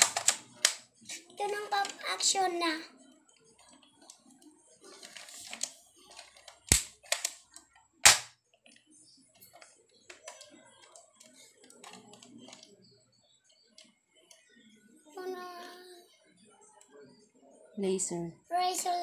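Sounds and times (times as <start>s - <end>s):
plastic clicks and rattles: 0.0s - 0.9s, 3.6s - 8.8s, 9.4s - 12.7s.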